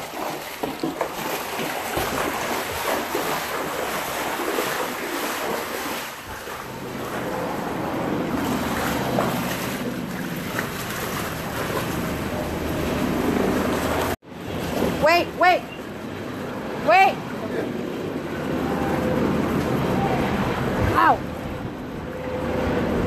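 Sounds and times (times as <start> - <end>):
water sloshing around wading legs: 0.0 - 15.0.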